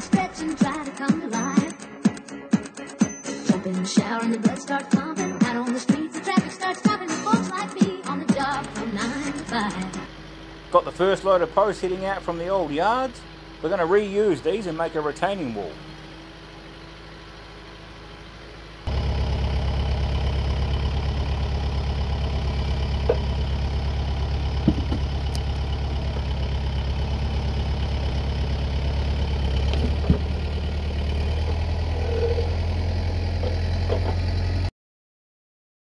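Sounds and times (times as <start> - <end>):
diesel tractor engine idling: 0.0 - 1.0, 8.3 - 34.7
short knocks: 24.6 - 25.4, 29.7 - 30.4.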